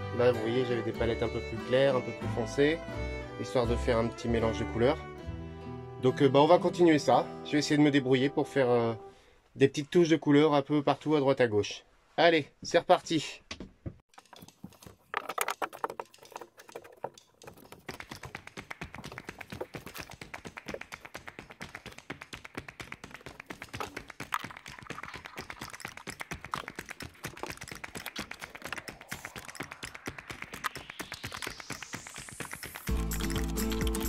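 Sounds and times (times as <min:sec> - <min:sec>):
rain pattering on a roof: 0:17.4 - 0:32.8.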